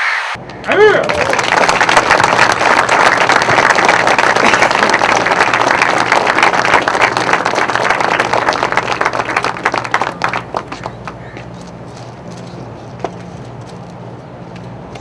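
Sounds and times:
crowd applauding: 0:00.6 - 0:11.4.

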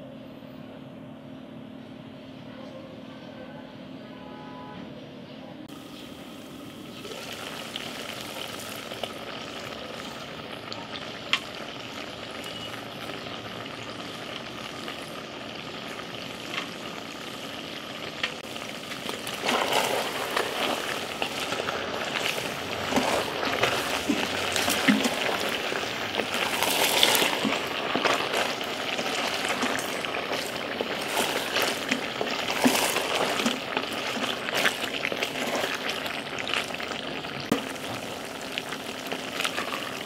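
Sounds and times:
stew bubbling in a pot: 0:05.7 - 0:40.0
wooden spoon scraping a pot: 0:18.5 - 0:36.8.

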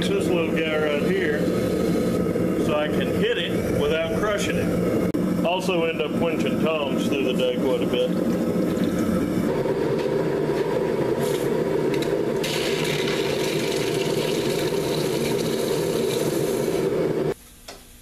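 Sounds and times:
hot steel hissing in water: 0:00.0 - 0:04.8, 0:12.4 - 0:17.4.

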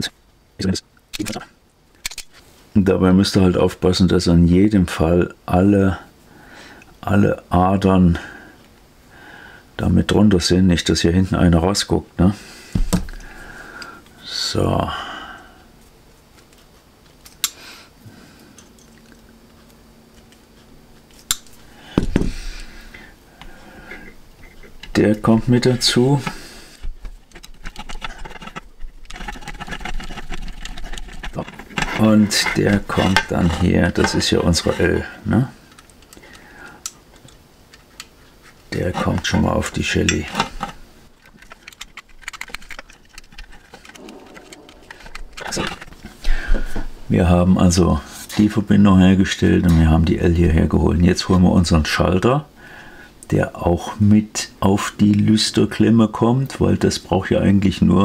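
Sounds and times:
dull thump with handling noise: 0:12.8 - 0:13.2, 0:21.9 - 0:22.4
plastic housings handled: 0:24.0 - 0:35.0, 0:40.0 - 0:46.8
screwdriver clicking and scraping: 0:26.2 - 0:34.9, 0:40.1 - 0:46.2.

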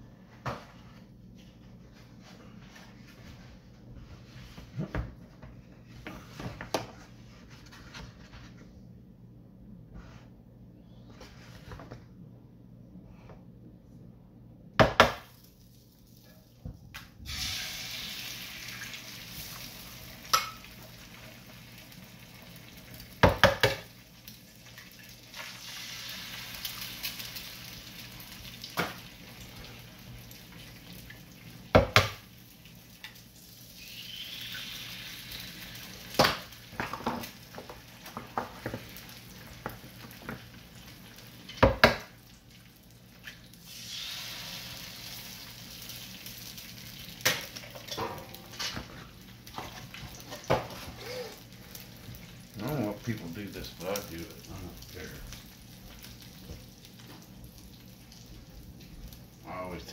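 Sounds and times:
eggs sizzling on a griddle: 0:17.3 - 0:59.4.

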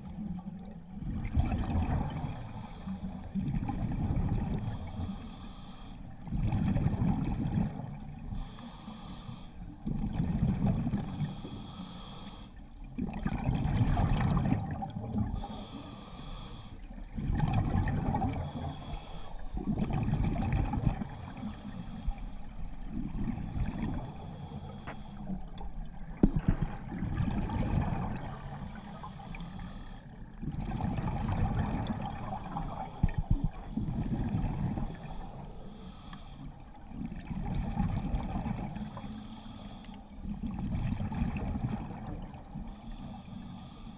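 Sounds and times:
regulator inhale hiss: 0:02.1 - 0:03.2, 0:04.6 - 0:06.1, 0:08.3 - 0:09.9, 0:11.0 - 0:12.6, 0:15.3 - 0:16.9, 0:18.4 - 0:19.6, 0:21.0 - 0:22.7, 0:24.0 - 0:25.5, 0:28.3 - 0:30.2, 0:32.1 - 0:34.1, 0:34.8 - 0:36.7, 0:38.8 - 0:40.4, 0:42.6 - 0:43.9.

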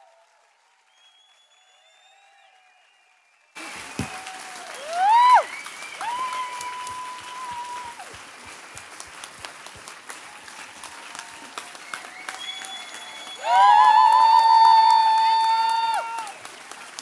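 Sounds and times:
audience applause and cheering: 0:00.0 - 0:17.0
loud rising whoop: 0:04.8 - 0:07.9.

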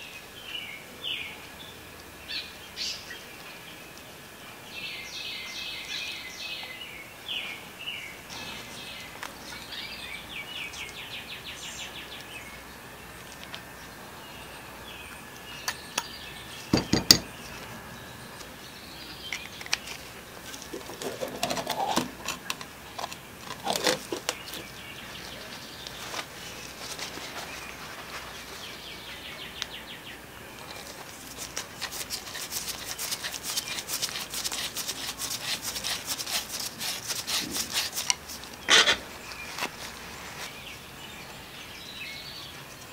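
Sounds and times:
birds chirping: 0:00.0 - 0:42.9
rod rubbing inside metal tube: 0:31.3 - 0:39.0.

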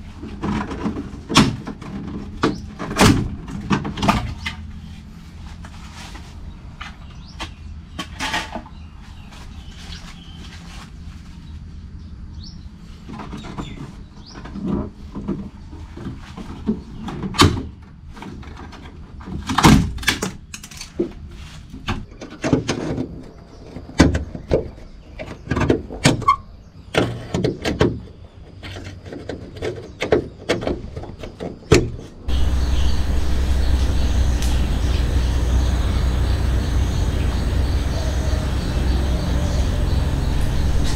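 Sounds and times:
steady low rumble: 0:32.2 - 0:40.9.

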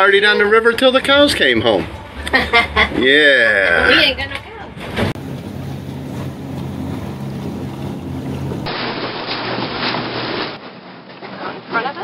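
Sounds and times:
outboard motor hum: 0:00.0 - 0:12.0
rushing water: 0:05.1 - 0:12.0.

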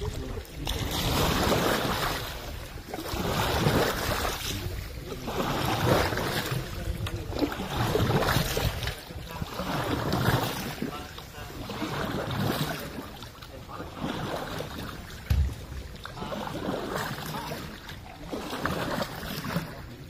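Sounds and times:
wind rumble on microphone: 0:00.0 - 0:12.9
floodwater sloshing: 0:00.0 - 0:20.0.

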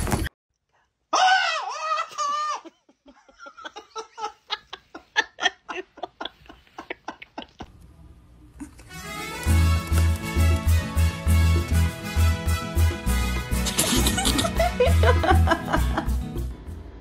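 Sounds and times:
man laughing in bursts: 0:01.8 - 0:07.7, 0:13.6 - 0:16.2.

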